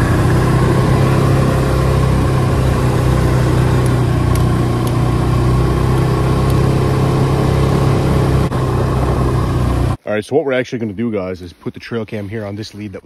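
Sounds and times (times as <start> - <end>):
snowmobile engine droning: 0.0 - 10.0.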